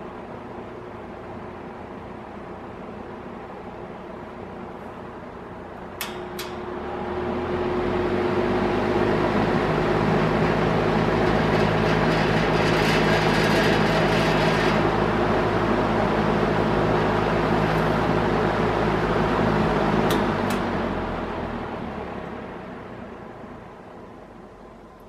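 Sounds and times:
box fan running: 0.0s - 25.0s
fan push button click: 5.9s - 6.7s, 20.1s - 20.8s.

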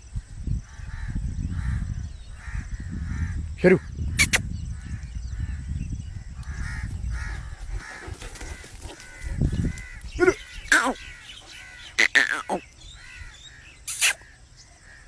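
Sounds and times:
crows cawing: 6.5s - 13.7s.

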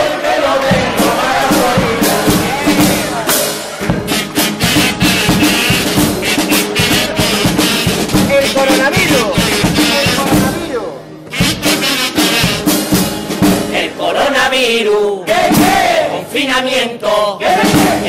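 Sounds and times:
bass drum and snare beat: 0.6s - 10.7s, 11.3s - 13.9s, 15.4s - 16.0s, 17.4s - 18.0s
guitars: 0.7s - 14.0s
kazoos playing a tune: 1.2s - 10.5s, 11.3s - 13.0s.

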